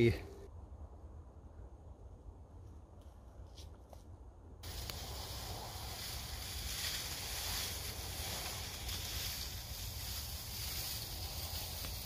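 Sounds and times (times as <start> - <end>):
low rumble: 0.2 - 3.3
steady rushing hiss: 4.6 - 12.0.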